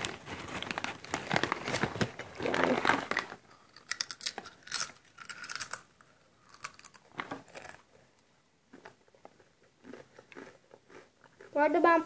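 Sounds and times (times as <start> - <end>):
plastic chip bag crinkling: 0.0 - 8.1.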